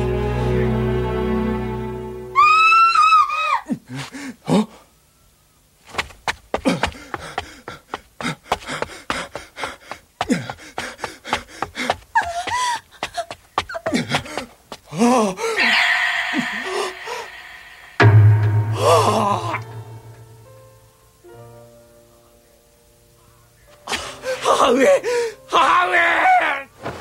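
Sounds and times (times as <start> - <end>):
shrill cry: 2.3 - 3.8, 15.0 - 17.9, 25.5 - 26.7
agitated shouting voices: 15.6 - 17.6.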